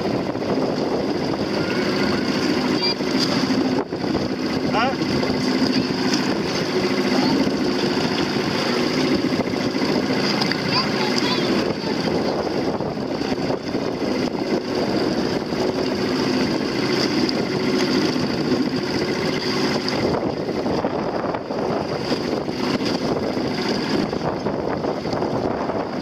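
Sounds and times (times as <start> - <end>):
boat motor running: 0.0 - 26.0
choppy water: 0.0 - 26.0
wind: 0.0 - 26.0.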